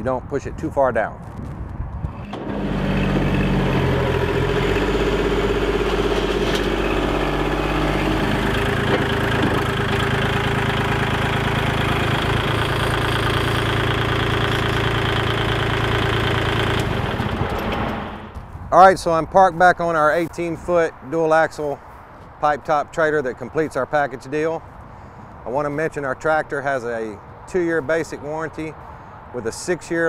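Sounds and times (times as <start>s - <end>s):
tractor diesel engine running: 2.1s - 18.6s.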